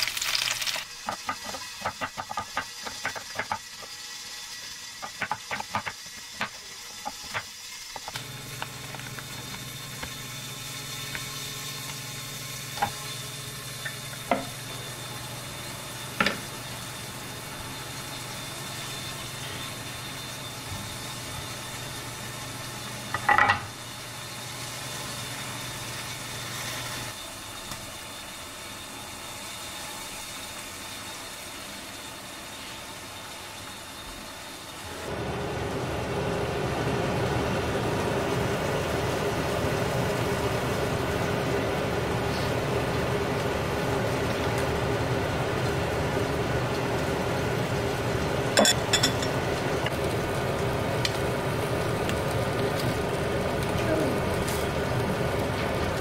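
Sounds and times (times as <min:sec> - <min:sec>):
mechanical hum and hiss: 0:00.0 - 0:56.0
metal spoon clinking on bowl: 0:48.6 - 0:49.3.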